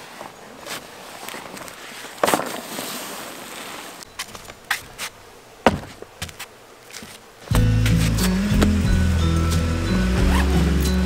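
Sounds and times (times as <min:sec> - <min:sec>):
camping gear knocking: 0:05.6 - 0:06.4, 0:07.0 - 0:08.9.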